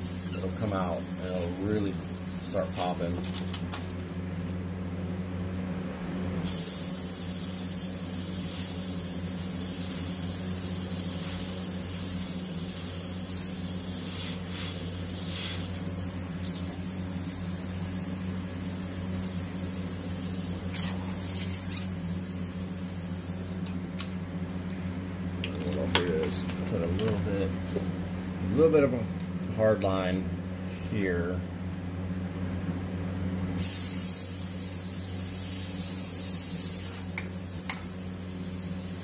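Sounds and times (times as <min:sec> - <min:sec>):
airbrush spraying hiss: 0:00.0 - 0:03.0, 0:06.4 - 0:23.6, 0:33.6 - 0:39.0.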